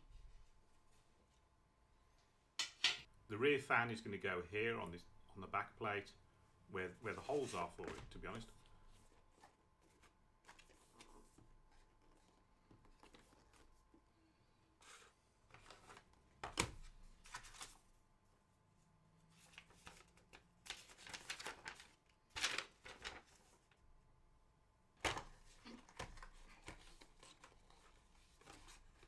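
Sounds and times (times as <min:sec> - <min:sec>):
cardboard box and paper rustling: 0:07.3 - 0:13.8, 0:19.3 - 0:23.8, 0:25.0 - 0:29.0.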